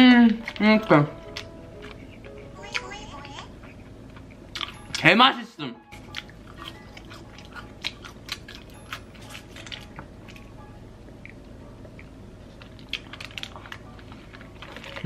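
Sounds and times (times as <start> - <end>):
chewing fries close up: 6.1 - 10.5, 12.0 - 15.0.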